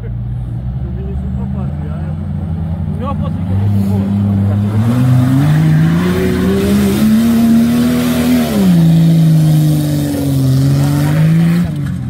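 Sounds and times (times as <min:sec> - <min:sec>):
engine revving hard: 0:03.0 - 0:11.9.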